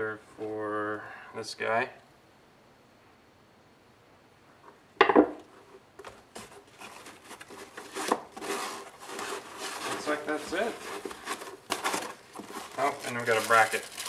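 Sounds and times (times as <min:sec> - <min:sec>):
metal object knocking on wooden table: 0:05.0 - 0:05.4
foam packing scraping in cardboard box: 0:06.4 - 0:14.0.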